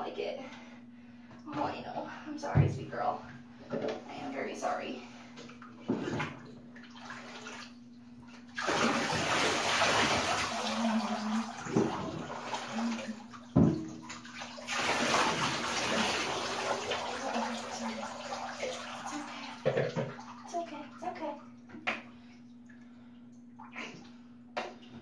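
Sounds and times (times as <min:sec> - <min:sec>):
water splashing into a bathtub: 0:05.4 - 0:25.0.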